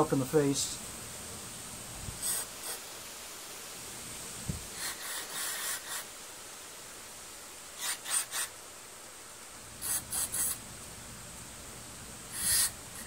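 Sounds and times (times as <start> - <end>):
aerosol spray hissing: 2.0 - 3.1, 4.4 - 6.3, 7.7 - 8.7, 9.8 - 10.7, 12.3 - 13.0.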